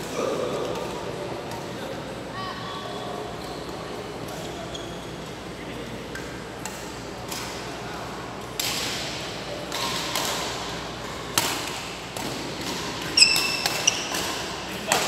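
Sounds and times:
rackets striking shuttlecocks: 11.2 - 15.0.

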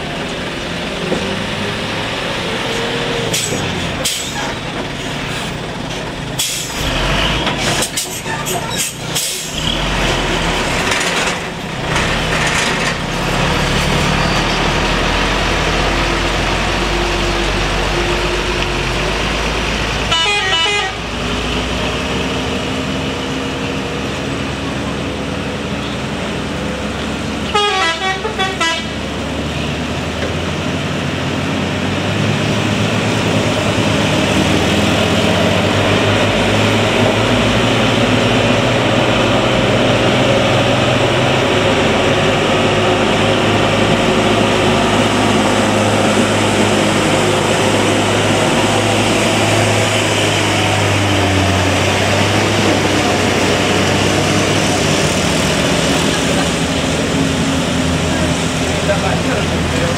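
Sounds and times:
truck diesel engine labouring: 0.0 - 59.9
horn toots stepping in pitch: 20.1 - 21.0, 27.5 - 28.9.

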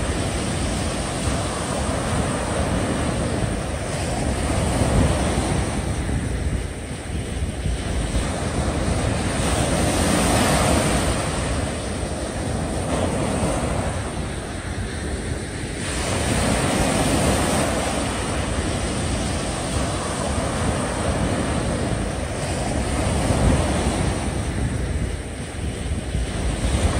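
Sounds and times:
waves breaking on beach: 0.0 - 26.9
wind buffeting microphone: 0.0 - 26.9.

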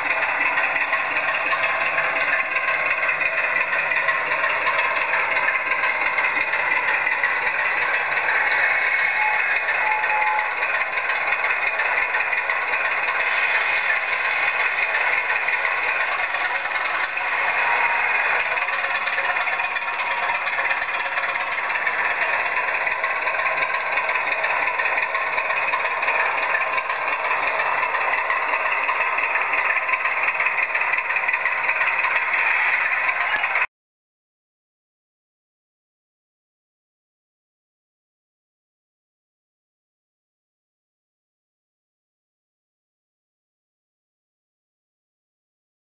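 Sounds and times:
model diesel engine sound from speaker: 0.0 - 33.7.

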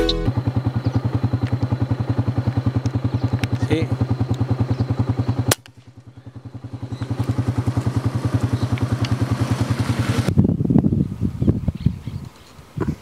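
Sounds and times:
small engine puttering: 0.0 - 10.3.

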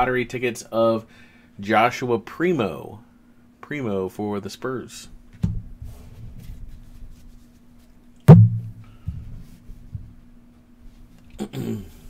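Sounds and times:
steady low hum: 0.0 - 12.0
loud knock on table: 8.3 - 8.8.

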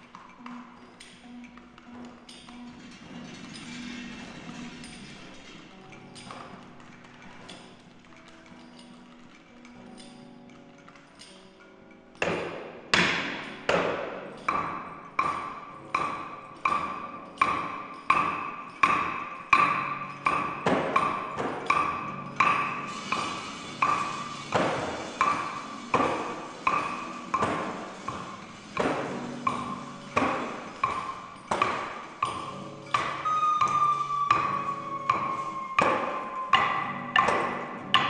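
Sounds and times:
ringing pitched ping: 29.5 - 38.0
low sustained tone: 32.3 - 38.0.

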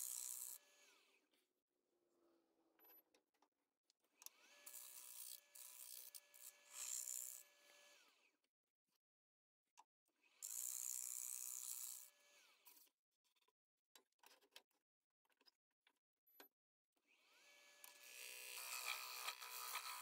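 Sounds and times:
wood lathe motor whine: 17.3 - 20.0
gouge cutting wood shavings: 18.2 - 20.0.

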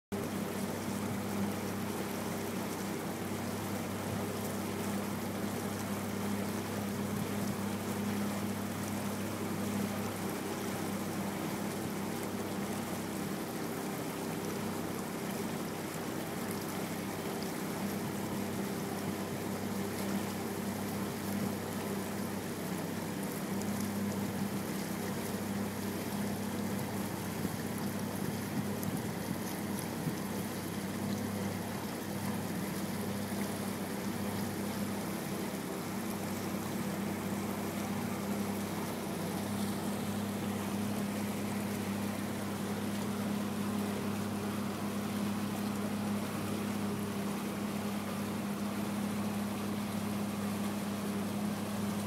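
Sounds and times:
motorboat engine humming: 0.1 - 52.0
water rushing along hull: 0.1 - 52.0.

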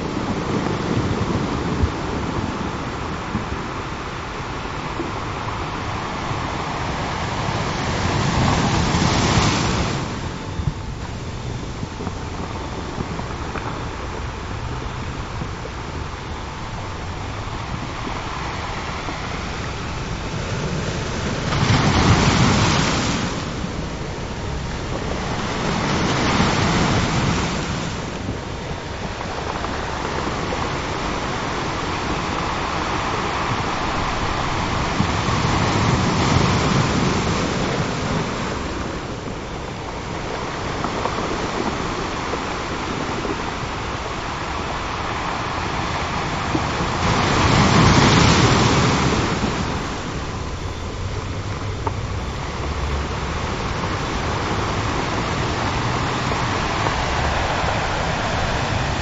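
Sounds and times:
ocean waves breaking on beach: 0.0 - 59.0.

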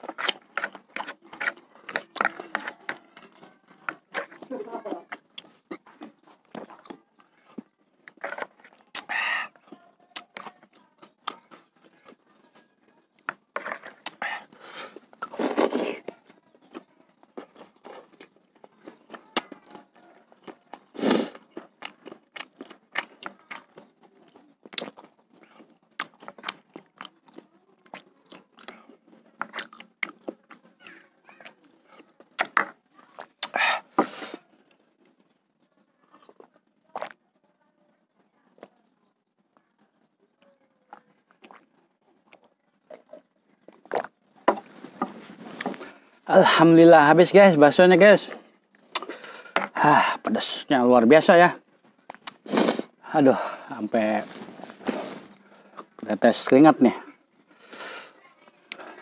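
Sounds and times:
spoon scraping plastic bowl: 0.0 - 6.2, 13.5 - 14.2
chewing: 0.0 - 37.2, 38.5 - 46.6, 48.2 - 50.4, 51.6 - 59.0
slurping broth: 13.5 - 16.1, 20.9 - 21.5, 31.4 - 34.4, 52.2 - 55.8.

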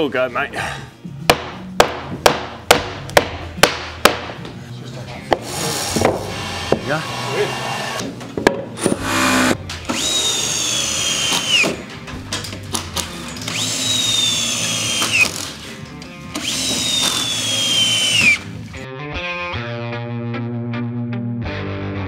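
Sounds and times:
cordless drill driving screws: 8.9 - 11.8, 13.4 - 15.6, 16.3 - 18.5.

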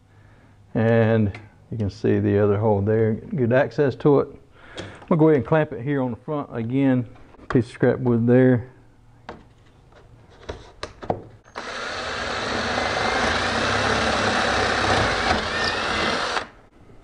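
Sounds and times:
cordless drill boring wood: 11.5 - 16.6.

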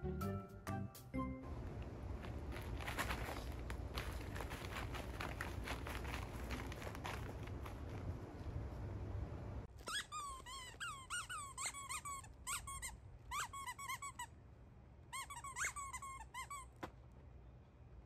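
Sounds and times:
low background noise: 0.0 - 18.0
squeaky dog toy squeaking: 9.7 - 14.4, 15.1 - 16.8.

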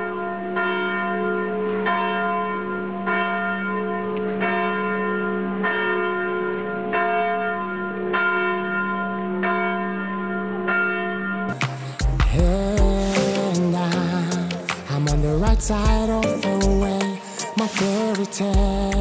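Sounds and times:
church bell tolling: 0.0 - 11.5
pop song: 11.5 - 19.0.

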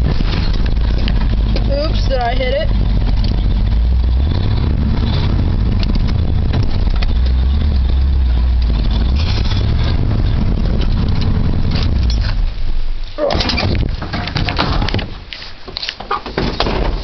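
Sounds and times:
truck engine exhaust note: 0.0 - 14.9.

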